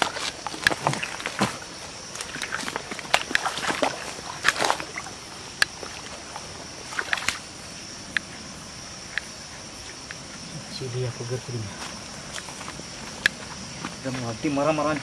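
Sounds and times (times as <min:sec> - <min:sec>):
hands splashing water: 0:00.0 - 0:06.2
steady high hiss: 0:00.0 - 0:15.0
faint ticks: 0:05.6 - 0:05.8, 0:08.1 - 0:08.3, 0:09.1 - 0:10.4, 0:13.2 - 0:14.0.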